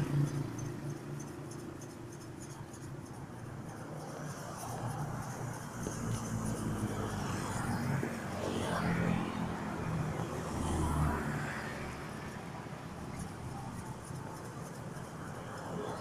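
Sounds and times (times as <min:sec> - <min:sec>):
cars driving past: 0:04.3 - 0:13.4.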